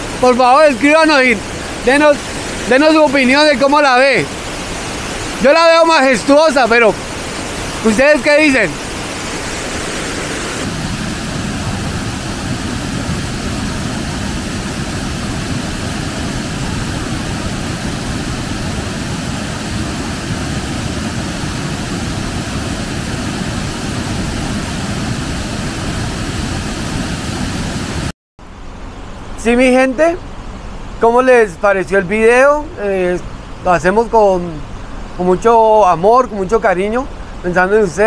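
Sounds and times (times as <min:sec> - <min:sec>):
waterfall roaring: 0:00.0 - 0:28.1.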